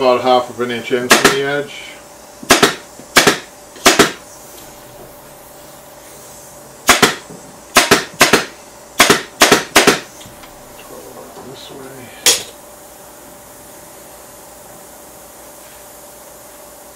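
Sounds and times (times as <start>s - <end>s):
staple gun firing: 2.5s - 4.2s, 6.9s - 7.2s, 7.8s - 10.1s.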